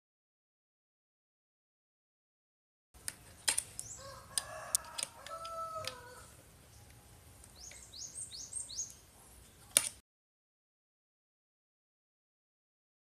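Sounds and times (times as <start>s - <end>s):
small bird chirping: 3.7s - 4.2s, 6.0s - 9.8s
rooster crowing: 3.9s - 6.4s.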